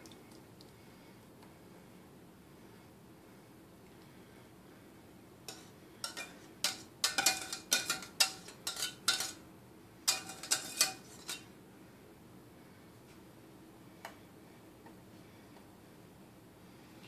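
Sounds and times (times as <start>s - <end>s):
metal utensil scraping a saucepan: 5.5s - 9.4s, 10.1s - 11.5s.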